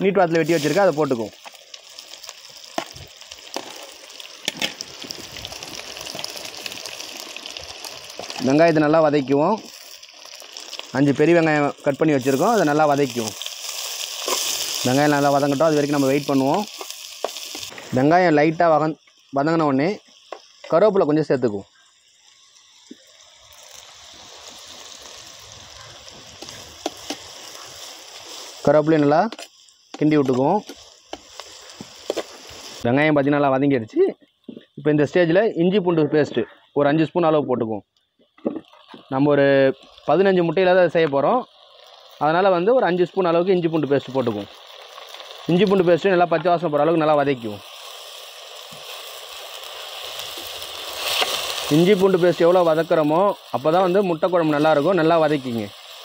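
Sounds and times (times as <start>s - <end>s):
onions sizzling in hot oil: 0.0s - 36.0s, 38.3s - 56.0s
oil pops and clicks: 4.4s - 5.2s.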